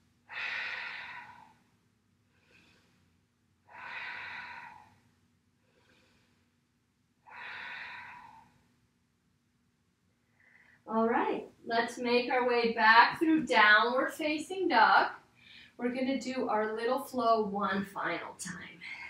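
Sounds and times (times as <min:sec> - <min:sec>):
woman breathing slowly: 0:00.2 - 0:08.9, 0:10.2 - 0:10.9, 0:15.2 - 0:15.8, 0:18.7 - 0:19.0.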